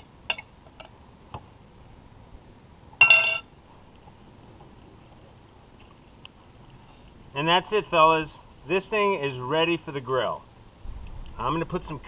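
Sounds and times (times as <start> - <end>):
spoon clinking glass bowl: 3.0 - 3.4.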